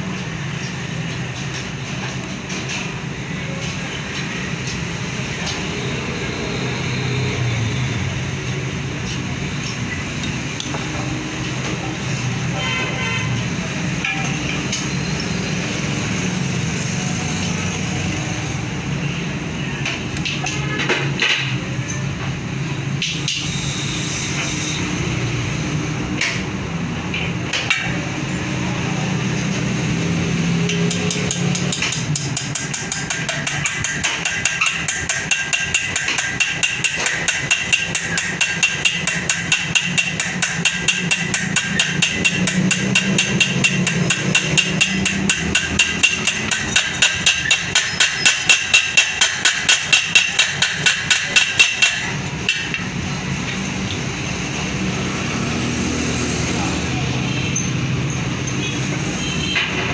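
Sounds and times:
hammer striking metal tool: 9.1s - 11.8s, 13.9s - 16.0s, 19.8s - 22.1s, 22.9s - 24.9s, 27.1s - 28.1s, 30.3s - 54.1s.

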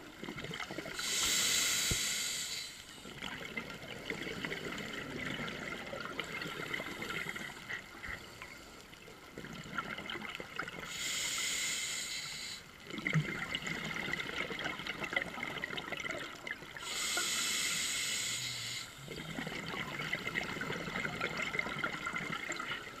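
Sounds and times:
hissing regulator inhalations: 1.0s - 3.0s, 10.9s - 12.7s, 16.8s - 19.2s
exhaled bubbles rushing: 19.0s - 23.0s.

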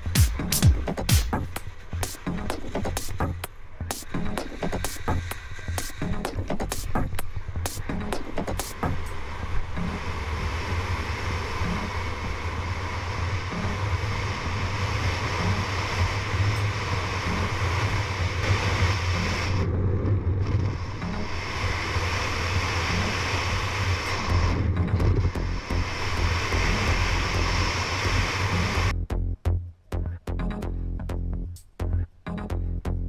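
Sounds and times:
wind buffeting microphone: 8.9s - 28.9s.

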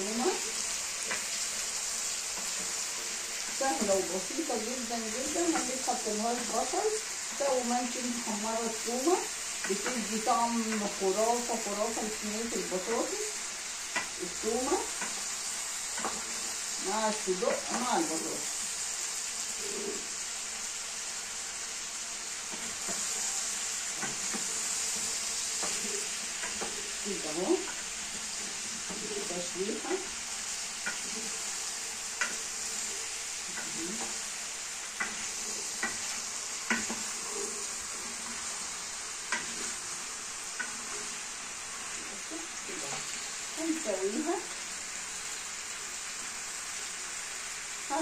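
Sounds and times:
food sizzling in a pan: 0.0s - 48.0s
wooden spoon knocking on pan: 36.7s - 37.0s.

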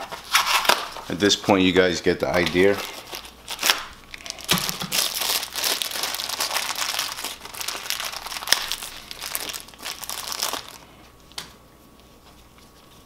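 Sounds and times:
plastic bag crinkling: 2.3s - 11.0s.

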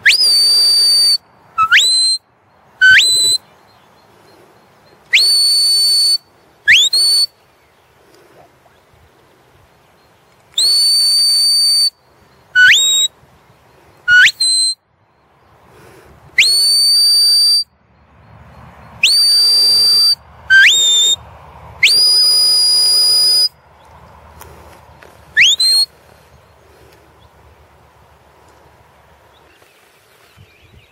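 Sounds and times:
long high whistles: 0.0s - 3.4s, 4.8s - 7.4s, 10.5s - 13.2s, 14.1s - 14.8s, 16.4s - 17.7s, 19.0s - 21.2s, 21.8s - 23.6s, 25.4s - 26.0s
short rising whistles: 0.0s - 3.4s, 4.8s - 7.4s, 10.6s - 13.1s, 14.1s - 14.8s, 16.4s - 17.7s, 19.0s - 23.6s, 25.4s - 26.0s.

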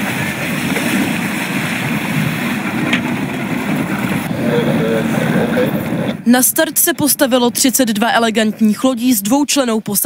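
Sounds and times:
choppy water splashing: 0.0s - 6.2s
gusty wind: 0.0s - 10.0s.

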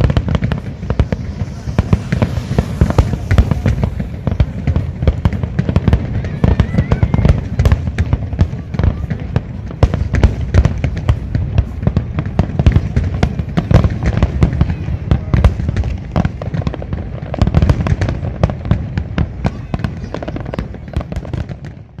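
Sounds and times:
low rumble: 0.0s - 6.3s
firework bursts and crackling: 0.0s - 22.0s.

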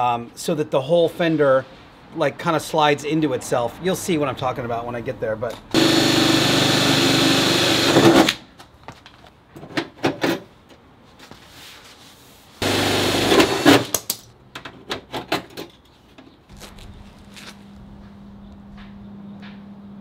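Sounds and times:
cordless drill drilling through steel: 5.8s - 8.4s, 12.6s - 13.7s.

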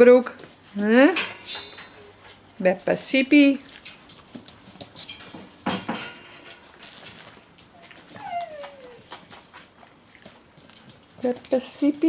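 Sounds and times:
puppy paws on wooden floor: 0.2s - 0.9s, 2.1s - 12.0s
puppy whine: 7.0s - 10.9s.

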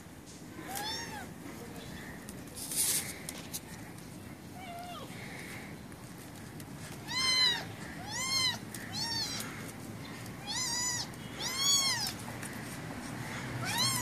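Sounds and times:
angry kitten meowing: 0.7s - 1.3s, 7.0s - 9.4s, 10.4s - 12.1s, 13.6s - 14.0s.

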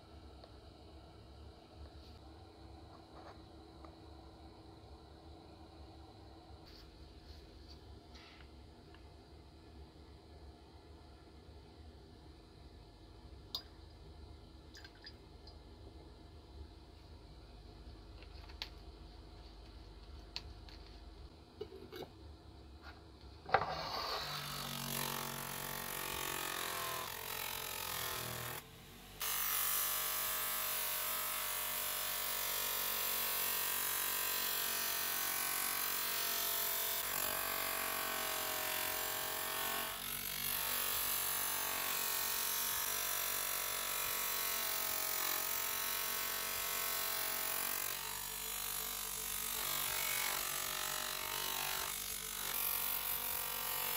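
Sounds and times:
metal polished against wheel: 23.5s - 24.3s.

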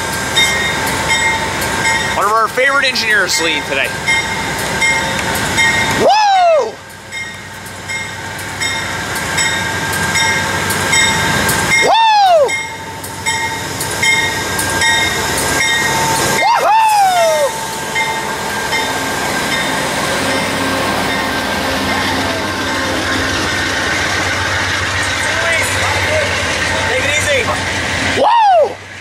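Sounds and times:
train bell dinging: 0.0s - 6.1s, 6.7s - 16.4s, 17.1s - 23.6s, 25.2s - 27.7s
train rolling past: 0.0s - 29.0s
person whooping: 6.0s - 6.8s, 11.8s - 12.6s, 16.4s - 17.6s, 28.1s - 28.8s.

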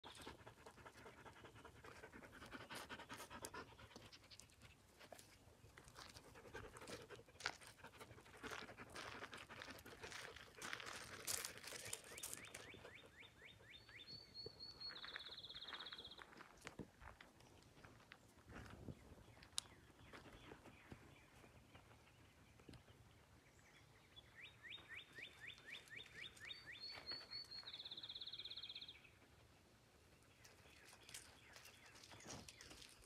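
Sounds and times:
dog panting: 0.0s - 5.3s, 5.9s - 11.5s
steps rustling on mulch: 5.0s - 12.7s.

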